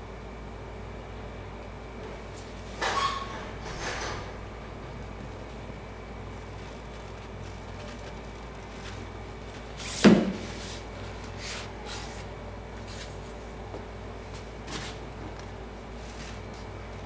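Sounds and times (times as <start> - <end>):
cardboard scrapes and rustles: 6.4 - 13.2.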